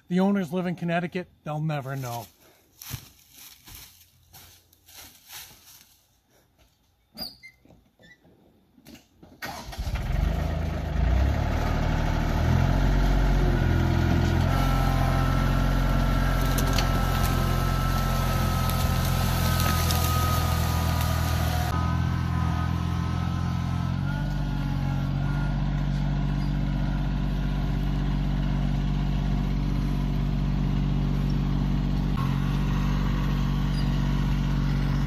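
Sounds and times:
footsteps: 1.9s - 7.9s
tractor engine running: 9.4s - 35.0s
log dragging: 13.9s - 21.8s.

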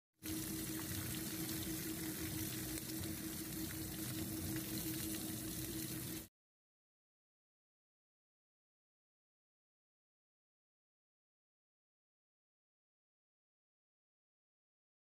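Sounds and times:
fish sizzling in hot oil: 0.2s - 6.3s
steady hum: 0.2s - 6.3s.

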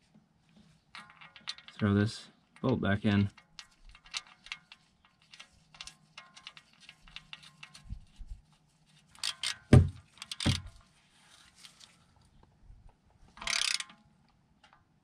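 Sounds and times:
wrench ratcheting: 1.0s - 1.8s, 3.3s - 8.2s, 9.2s - 10.7s, 13.4s - 14.0s
metal knocks: 9.7s - 10.7s
socket wrench clicks: 13.4s - 13.9s.

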